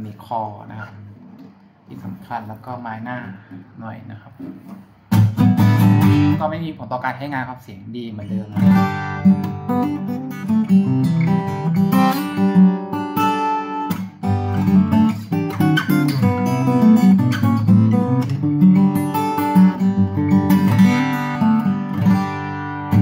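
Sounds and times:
fingerstyle acoustic guitar: 0:04.4 - 0:06.4, 0:08.2 - 0:23.0.

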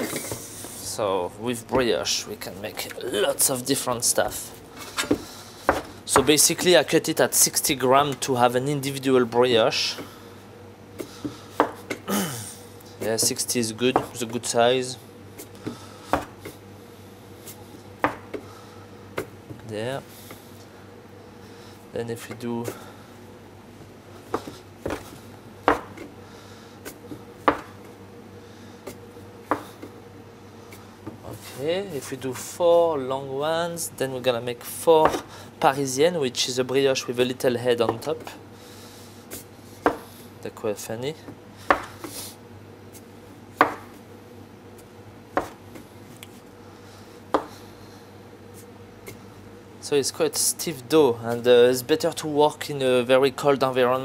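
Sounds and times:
dough scraper knocking on wood: 0:24.3 - 0:26.1, 0:43.6 - 0:43.9, 0:45.4 - 0:45.6
dough scraper knocking on worktop: 0:25.7 - 0:26.0.

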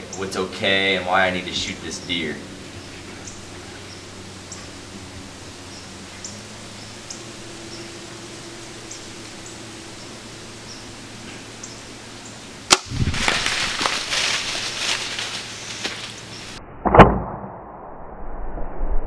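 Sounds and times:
deer running through dry leaves: 0:12.7 - 0:16.6.

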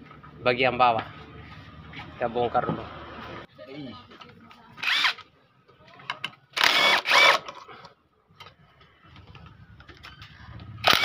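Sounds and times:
impact wrench motor whine: 0:06.6 - 0:07.4.

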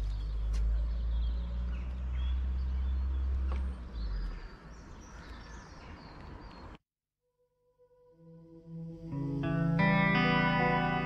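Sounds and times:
small birds chirping: 0:00.0 - 0:06.8.

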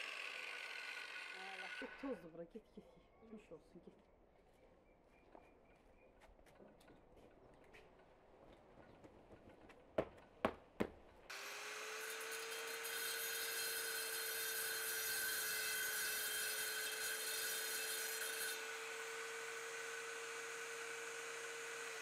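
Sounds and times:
angle grinder cutting brick: 0:00.0 - 0:02.3, 0:11.3 - 0:22.0.

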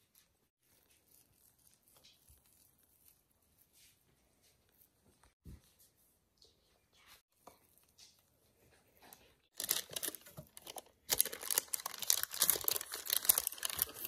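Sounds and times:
parchment paper crinkling: 0:09.5 - 0:14.0.

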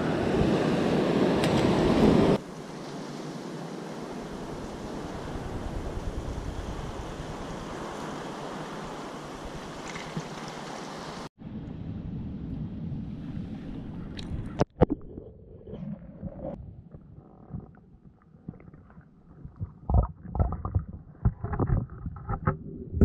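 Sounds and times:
surf washing over rocks: 0:00.4 - 0:11.3
wind on microphone: 0:04.4 - 0:08.0.

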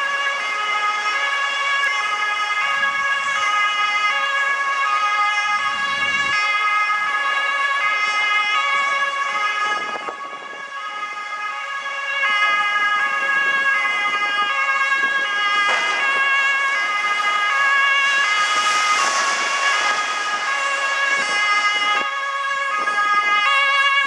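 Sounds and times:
two-tone sirens: 0:00.0 - 0:24.0.

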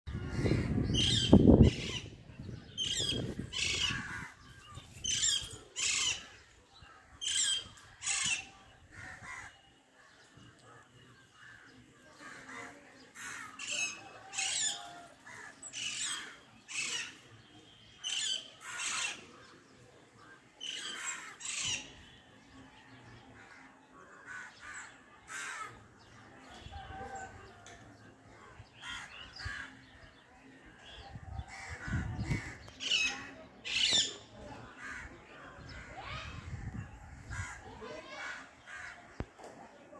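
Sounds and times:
microphone wind rumble: 0:00.1 - 0:04.5, 0:31.1 - 0:32.7, 0:35.6 - 0:37.6.

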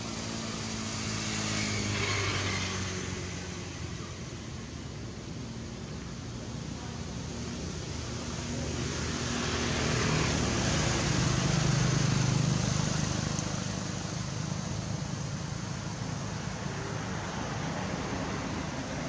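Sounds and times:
motor vehicle passing: 0:00.0 - 0:04.4.

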